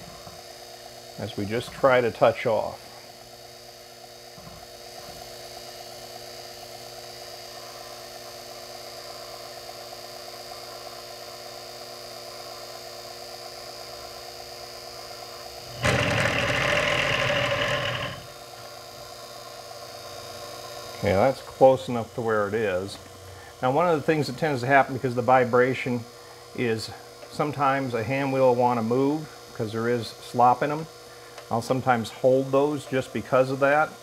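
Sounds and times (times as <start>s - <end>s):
mill motor whining: 15.6s - 18.4s
end mill cutting metal: 15.7s - 18.4s.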